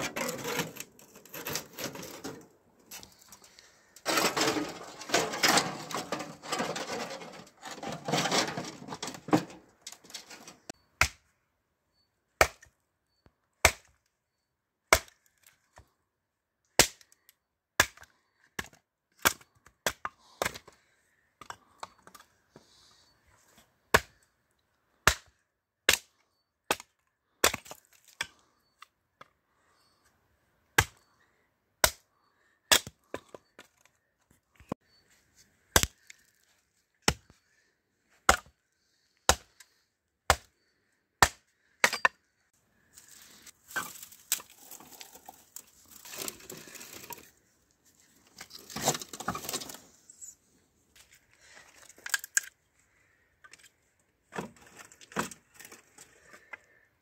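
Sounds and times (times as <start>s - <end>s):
axe splitting firewood: 0.0s - 11.3s, 12.4s - 12.7s, 13.6s - 14.0s, 14.8s - 15.9s, 16.7s - 17.1s, 17.8s - 20.8s, 23.9s - 24.2s, 25.0s - 29.3s, 30.7s - 31.1s, 31.8s - 32.0s, 32.6s - 33.9s, 35.7s - 36.3s, 37.0s - 37.4s, 38.1s - 42.4s, 43.0s - 47.3s, 48.2s - 49.8s.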